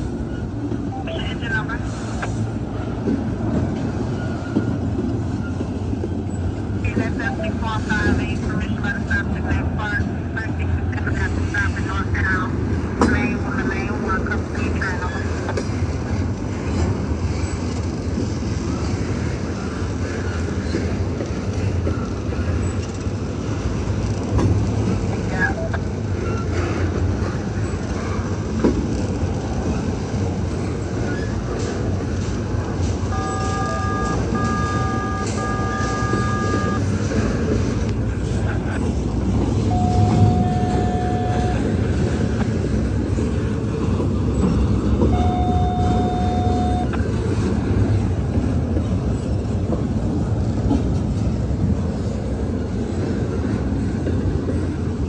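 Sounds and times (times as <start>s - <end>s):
freight train wheels rumbling on rail: 0.0s - 55.0s
thin steady whine: 33.1s - 36.9s.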